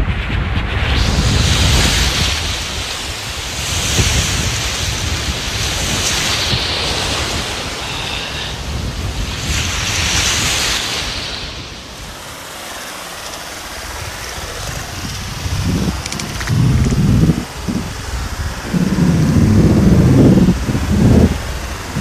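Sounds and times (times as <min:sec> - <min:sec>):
wind buffeting microphone: 0:00.0 - 0:22.0
sea waves breaking: 0:00.8 - 0:22.0.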